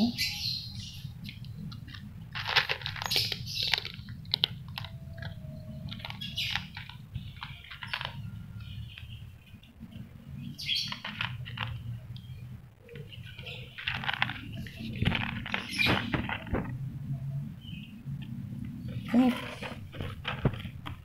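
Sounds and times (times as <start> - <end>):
cat chewing dry food: 1.3 - 8.2.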